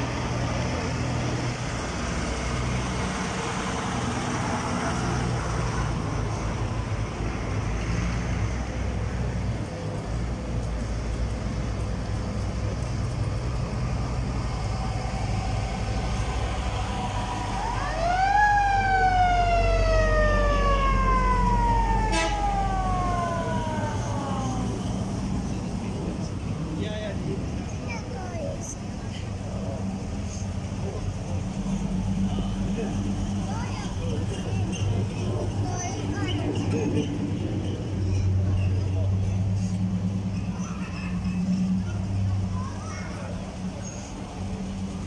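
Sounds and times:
old car engines rumbling: 0.0s - 45.0s
siren wailing: 16.8s - 25.2s.

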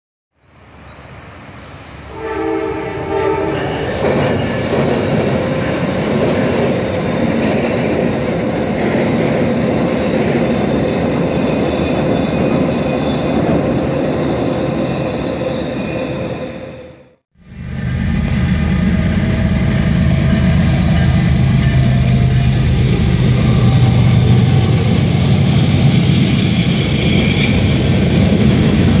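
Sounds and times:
train wheels rumbling on bridge: 1.6s - 16.3s, 17.8s - 29.0s
train horn: 2.1s - 3.9s.

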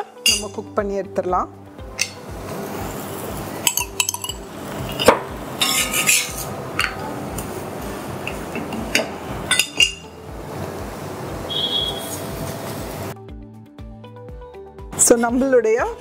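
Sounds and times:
spoon and bowl clinking on griddle: 0.0s - 0.6s, 2.0s - 2.2s, 3.6s - 7.4s, 8.2s - 10.2s.

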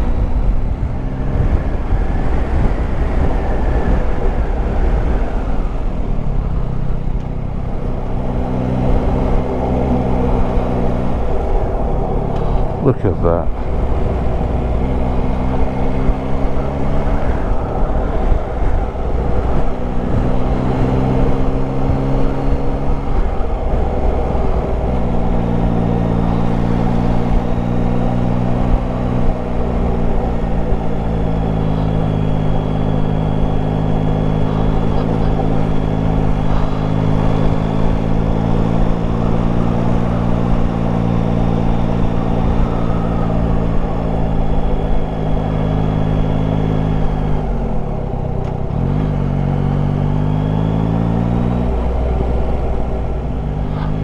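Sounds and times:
motorcycle engine running: 27.2s - 50.8s, 51.5s - 54.0s.

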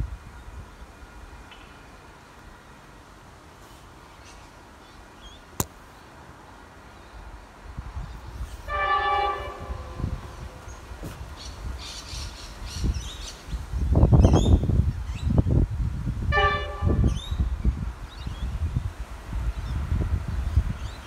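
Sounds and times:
low uneven rumble: 7.7s - 13.0s
train horn chord: 8.6s - 10.8s, 16.3s - 17.2s.

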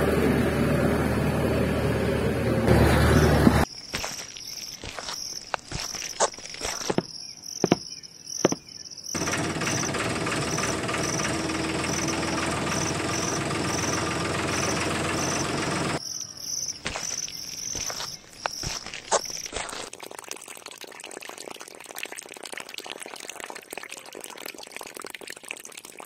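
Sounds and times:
insects chirping: 3.1s - 19.9s.

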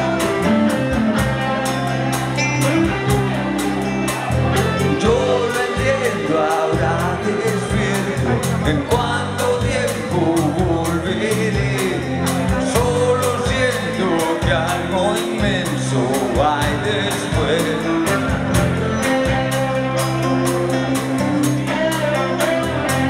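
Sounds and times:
bass guitar: 0.0s - 23.0s
drum kit beat: 0.0s - 23.0s
electric guitars: 0.0s - 23.0s
man singing: 4.6s - 19.4s.

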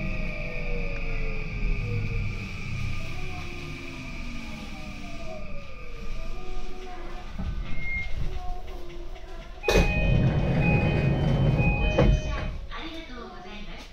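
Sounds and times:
train motor whine: 0.0s - 12.7s
low rumbling: 9.3s - 12.8s.

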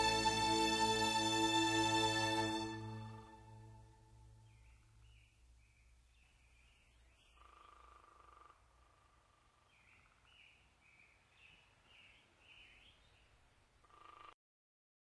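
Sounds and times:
faint chirping: 3.5s - 14.4s.

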